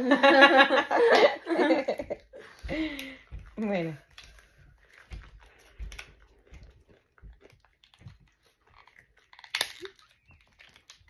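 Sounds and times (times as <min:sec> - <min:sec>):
packet crinkling and tearing: 0:05.4 - 0:11.0.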